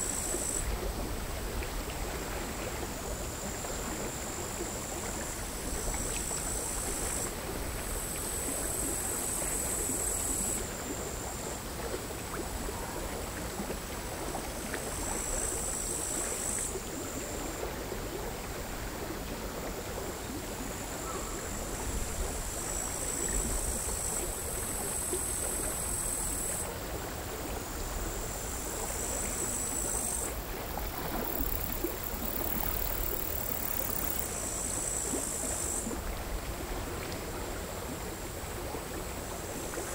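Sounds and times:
crickets singing: 0:00.0 - 0:00.7, 0:03.2 - 0:11.5, 0:15.0 - 0:17.5, 0:21.0 - 0:26.6, 0:27.7 - 0:36.0
waves lapping on stony shore: 0:26.3 - 0:34.4.

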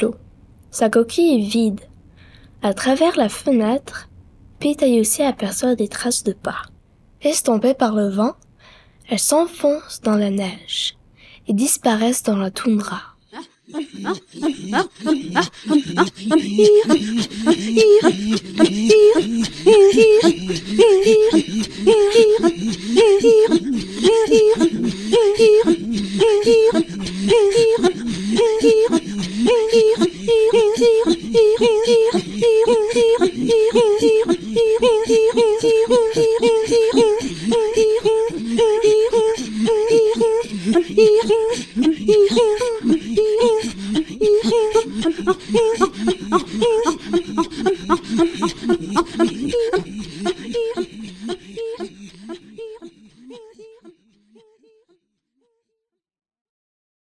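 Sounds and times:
throat singing: 0:13.3 - 0:54.9.

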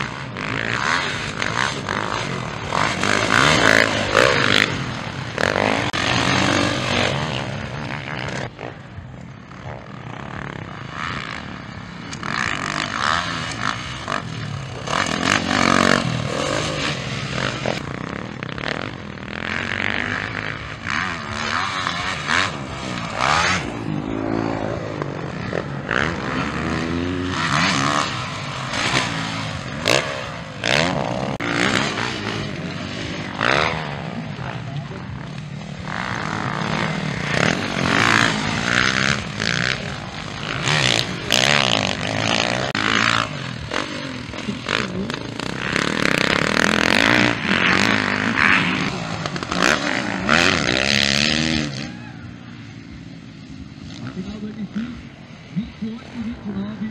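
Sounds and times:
motocross engines revving: 0:00.0 - 0:56.9.

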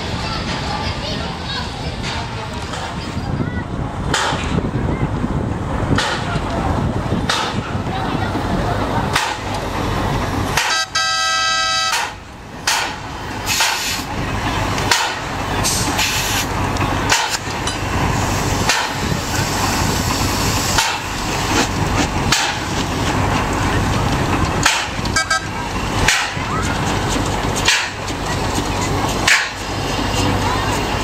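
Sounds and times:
train knocks and clanks: 0:00.0 - 0:31.0
train rumbling past: 0:00.0 - 0:31.0
train whistle toot: 0:10.7 - 0:12.1.

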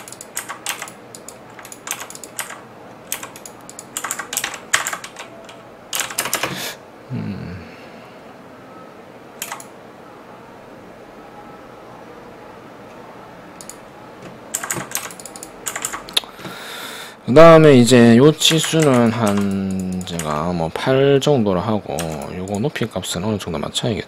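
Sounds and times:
keyboard typing: 0:00.0 - 0:06.6, 0:09.4 - 0:09.7, 0:13.6 - 0:16.3, 0:18.5 - 0:20.5, 0:22.0 - 0:22.7.

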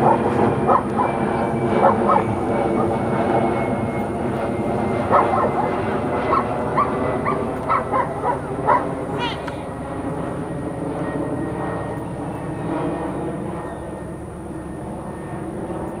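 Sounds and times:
engine drone: 0:00.0 - 0:16.0
dog yipping and barking: 0:01.8 - 0:02.9, 0:05.1 - 0:05.7, 0:06.3 - 0:09.4.

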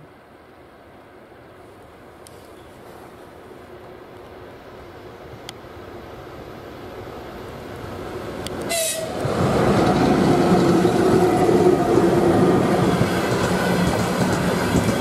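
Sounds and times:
locomotive hum: 0:00.1 - 0:15.0
train wheels rumbling: 0:07.6 - 0:15.0.

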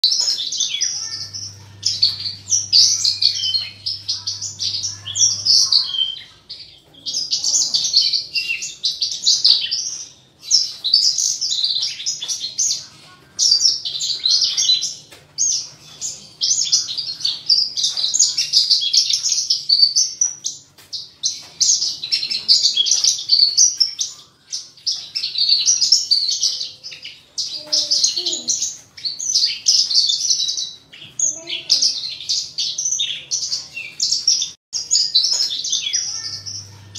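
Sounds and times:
larks twittering: 0:00.0 - 0:36.9.

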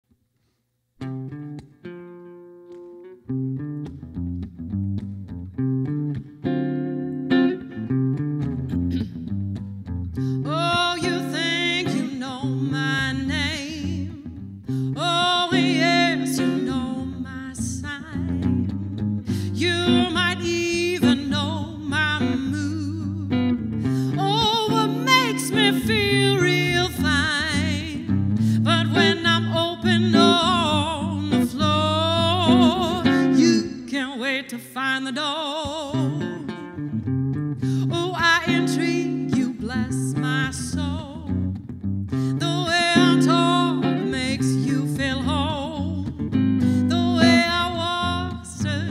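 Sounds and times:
acoustic guitar: 0:00.4 - 0:48.9
woman singing with vibrato: 0:10.3 - 0:36.9, 0:37.7 - 0:41.4, 0:42.3 - 0:48.9.

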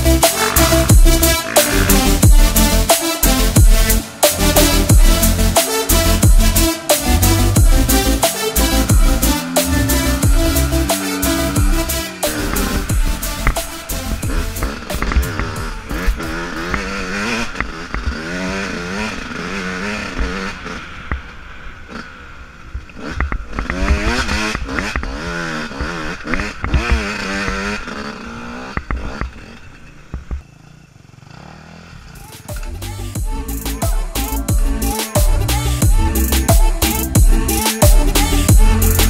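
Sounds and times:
dirt bike engine revving: 0:00.0 - 0:39.0
bike knocks and rattles: 0:23.0 - 0:27.9.

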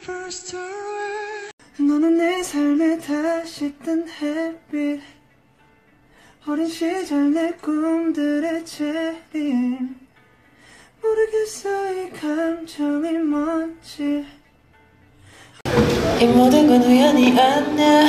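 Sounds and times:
man singing softly: 0:00.0 - 0:05.3, 0:06.3 - 0:10.2, 0:10.9 - 0:14.5.

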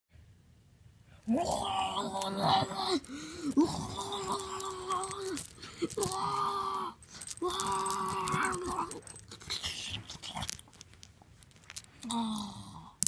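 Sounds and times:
crunching and clicking: 0:01.5 - 0:12.6.

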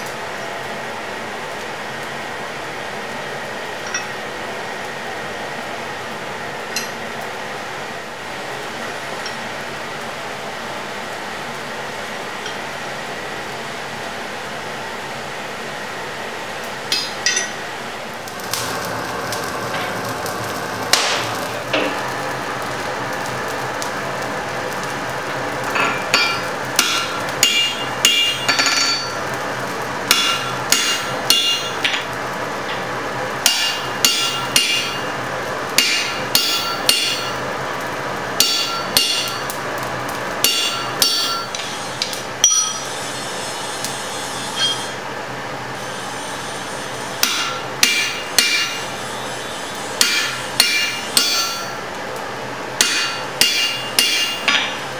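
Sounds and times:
hammer striking hot steel on anvil: 0:03.8 - 0:04.2, 0:06.7 - 0:07.0, 0:16.9 - 0:17.7, 0:20.9 - 0:22.1, 0:25.7 - 0:29.3, 0:30.1 - 0:35.2, 0:35.8 - 0:37.5, 0:38.4 - 0:39.6, 0:40.4 - 0:43.1, 0:44.4 - 0:45.0, 0:47.2 - 0:48.9, 0:50.0 - 0:51.8, 0:52.8 - 0:54.9.

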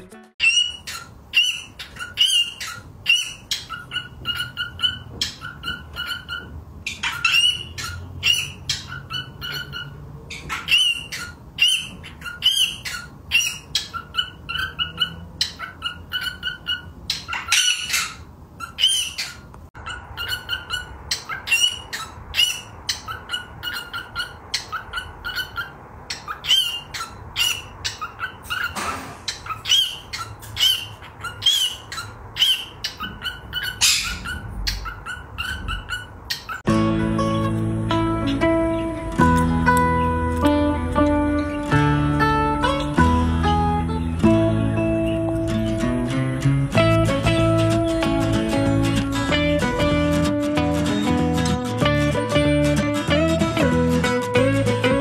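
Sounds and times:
cockatiel chirps and squawks: 0:00.4 - 0:36.7.

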